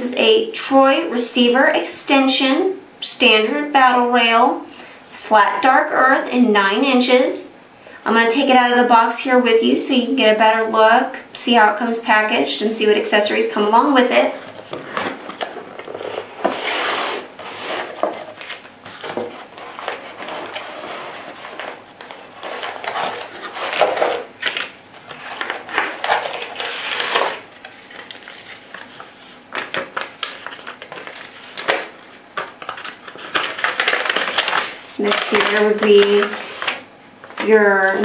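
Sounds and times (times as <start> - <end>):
plastic bags and foam rustling: 14.3 - 38.0.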